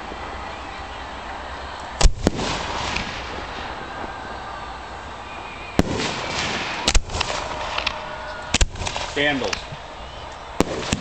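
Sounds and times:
firework mortar bangs: 2.0s - 4.2s, 5.6s - 9.9s, 10.5s - 11.0s.

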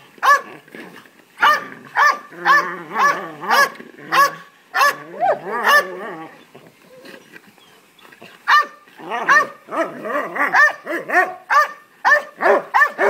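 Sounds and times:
dog barking rapidly: 0.2s - 0.5s, 1.4s - 5.9s, 8.5s - 13.0s.

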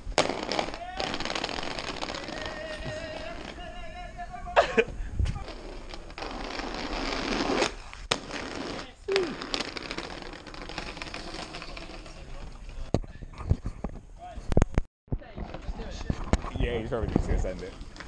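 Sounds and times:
skate wheels rolling on tarmac: 0.1s - 3.9s, 5.3s - 13.9s, 15.2s - 18.0s
wind on microphone: 1.7s - 7.2s.

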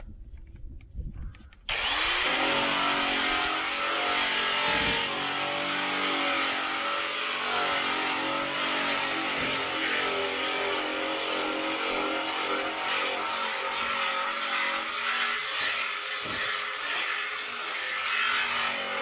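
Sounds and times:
angle grinder grinding metal: 1.7s - 19.0s.

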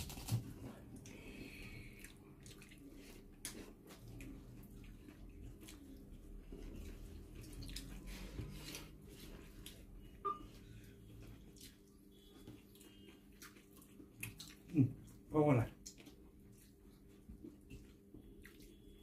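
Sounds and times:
chewing and lip sounds: 0.9s - 10.2s, 11.1s - 19.0s
fingers squishing wet food: 11.2s - 15.2s.

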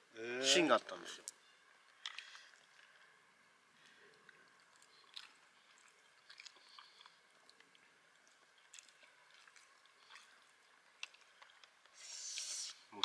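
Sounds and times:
chewing food: 3.8s - 12.0s
wet mouth sounds: 12.0s - 13.0s.

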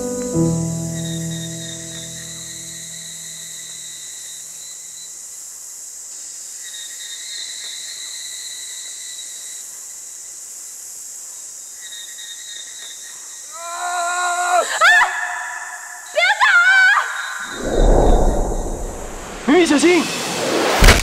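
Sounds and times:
insect chorus high-pitched hiss: 0.1s - 17.4s
shrill insect trill: 0.3s - 10.4s.

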